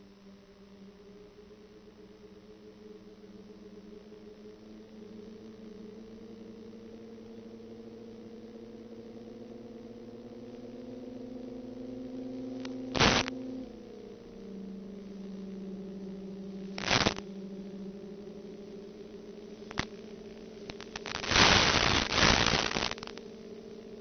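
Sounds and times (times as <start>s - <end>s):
quadcopter motors humming: 1.5s - 24.0s
crackling noise bursts: 7.0s - 24.0s.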